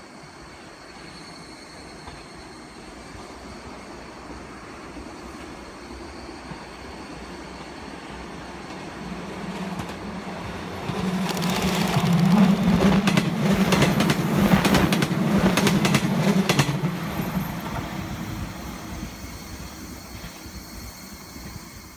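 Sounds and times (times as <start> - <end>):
train rumble: 0.0 - 21.9
train wheels clattering: 8.6 - 17.9.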